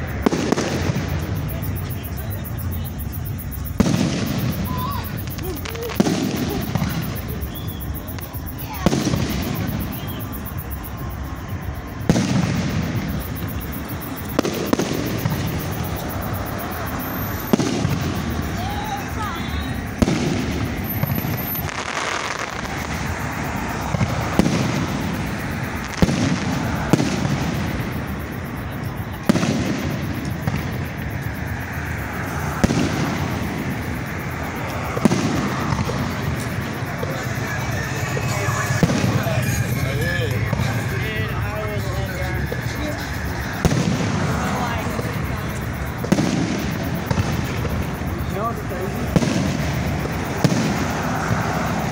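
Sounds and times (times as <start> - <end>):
firework cracks: 0.0 - 51.9
low rumble of fireworks: 0.0 - 51.9
firework boom: 12.0 - 18.7, 19.9 - 31.2, 43.6 - 48.0.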